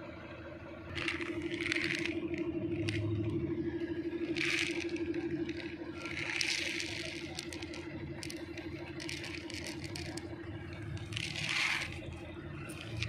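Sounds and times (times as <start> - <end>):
steady low hum: 0.0 - 13.0
cat crunching dry kibble: 1.0 - 3.3, 4.0 - 13.0.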